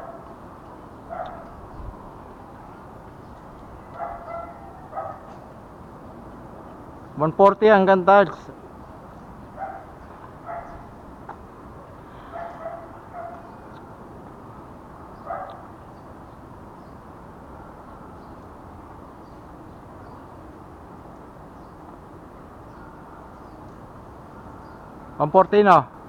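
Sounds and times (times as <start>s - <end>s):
dog barking: 0.0s - 0.2s, 1.1s - 1.6s, 3.9s - 5.4s, 9.6s - 10.9s, 12.3s - 13.5s, 15.2s - 15.7s.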